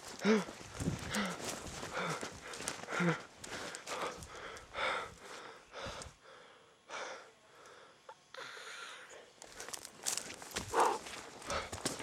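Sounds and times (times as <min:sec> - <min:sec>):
footsteps on forest floor: 0:00.0 - 0:05.3, 0:09.4 - 0:12.0
person panting heavily: 0:00.1 - 0:09.7, 0:10.6 - 0:12.0.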